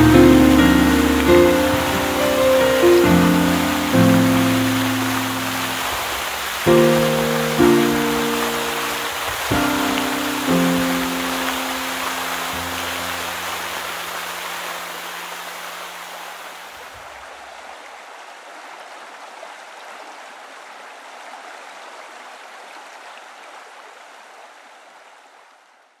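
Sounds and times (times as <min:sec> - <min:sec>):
background music: 0:00.0 - 0:05.9, 0:06.7 - 0:13.4
water rushing in mountain stream: 0:00.0 - 0:26.0.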